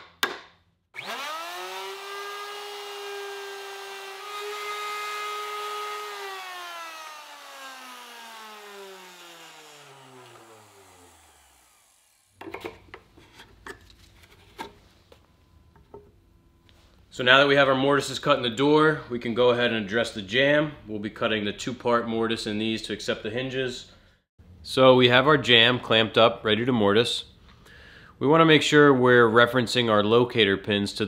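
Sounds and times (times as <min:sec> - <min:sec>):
electric router running: 0:01.0 - 0:12.4.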